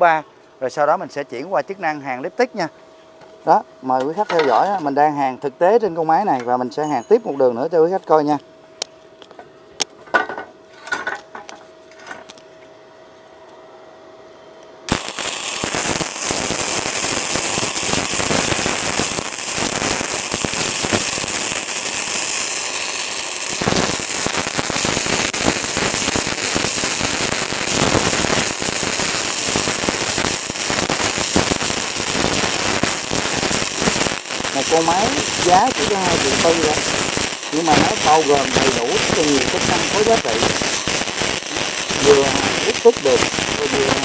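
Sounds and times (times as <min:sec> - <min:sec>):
welding arc crackling: 0:14.9 - 0:44.0.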